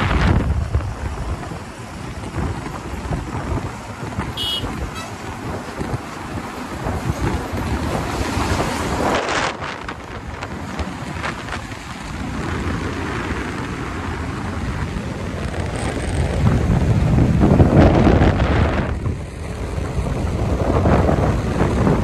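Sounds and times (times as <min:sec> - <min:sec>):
motorcycle engine: 0:00.0 - 0:10.4
road noise: 0:00.0 - 0:22.0
wind rushing over microphone: 0:00.0 - 0:22.0.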